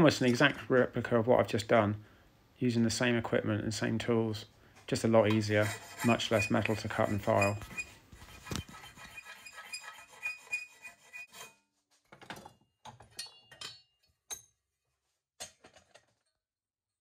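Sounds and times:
file rasping on metal: 5.4s - 11.6s
metal clinks and knocks: 12.1s - 14.6s.

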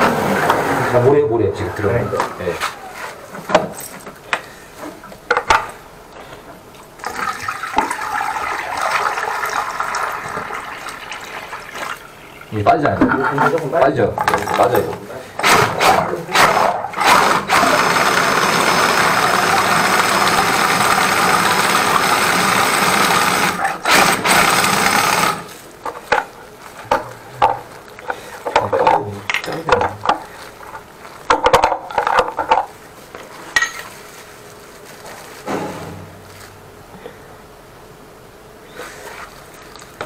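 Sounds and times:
drain cleaner cable spinning: 16.9s - 26.3s.

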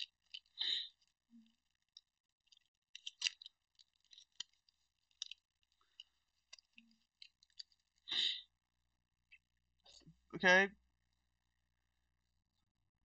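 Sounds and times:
wrappers crinkling: 0.0s - 8.4s.

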